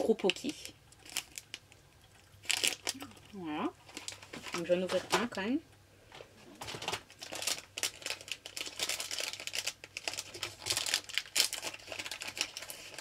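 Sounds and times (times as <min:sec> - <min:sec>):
wrapper crinkling and tearing: 0:00.0 - 0:05.2, 0:06.6 - 0:13.0.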